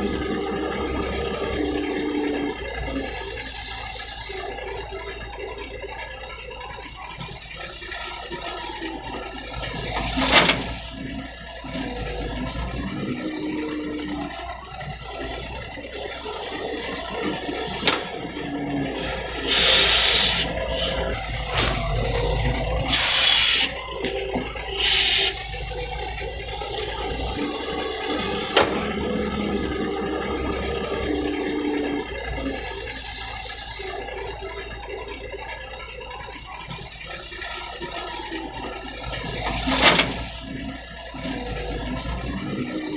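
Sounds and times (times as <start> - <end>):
excavator diesel engine: 0.0 - 42.9.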